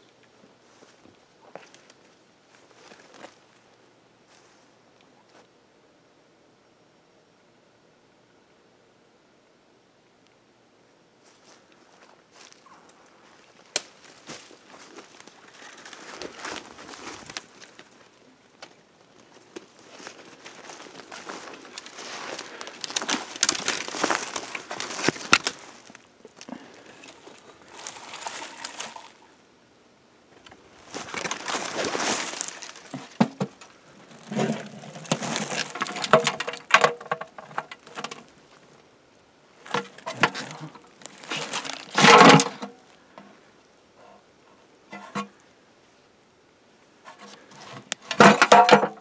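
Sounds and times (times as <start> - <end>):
footsteps crunching dry leaves: 11.3 - 18.2, 19.1 - 29.2, 30.7 - 33.4, 34.0 - 36.2, 39.7 - 42.3.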